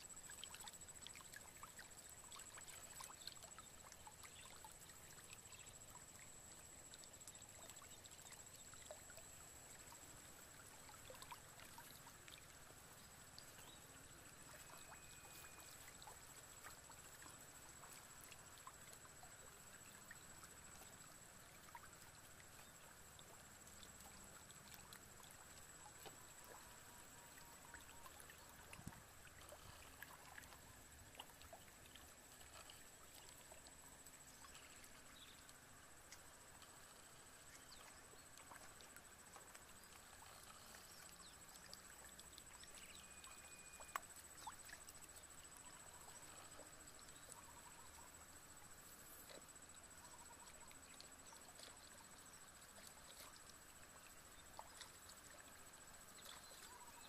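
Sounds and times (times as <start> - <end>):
faint background hiss: 0.0 - 57.0
faint ticks: 14.5 - 57.0.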